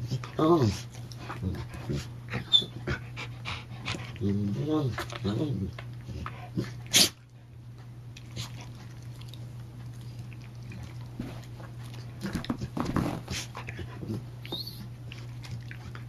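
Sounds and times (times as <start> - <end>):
dogs scuffling: 11.1 - 13.6.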